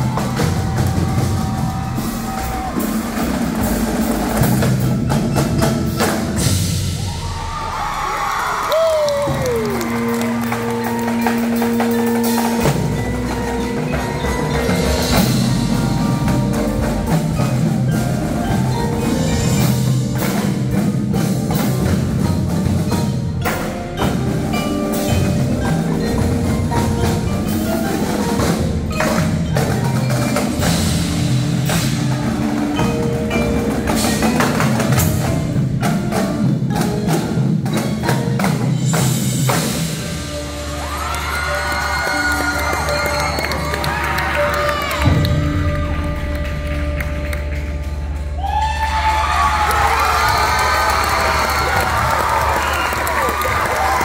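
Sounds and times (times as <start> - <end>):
marching snare and bass drums: 0.0 - 8.3, 8.9 - 41.0
cymbals: 0.0 - 54.0
drum kit: 0.0 - 54.0
marimbas and vibraphone: 0.0 - 54.0.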